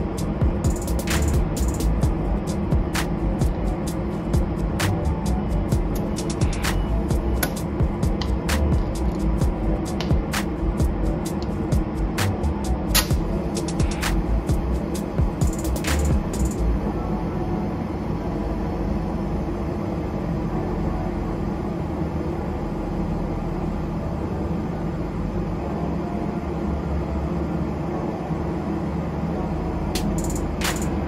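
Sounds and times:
low machine drone: 0.0 - 31.0.

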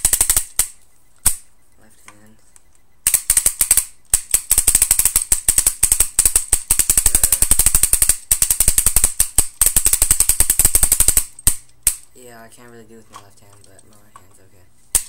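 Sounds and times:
paintball marker rapid firing: 0.0 - 1.5, 3.0 - 12.1.

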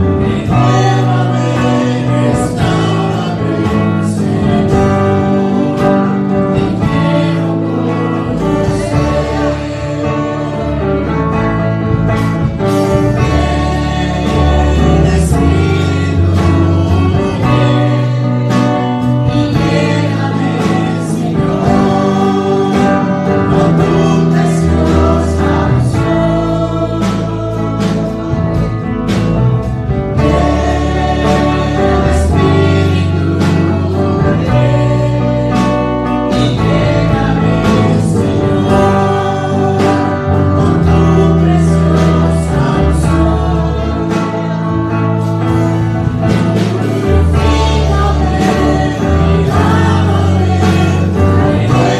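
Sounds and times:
man singing along: 0.0 - 29.2, 29.9 - 45.2, 46.0 - 51.9
band accompaniment with bass: 0.0 - 51.9.

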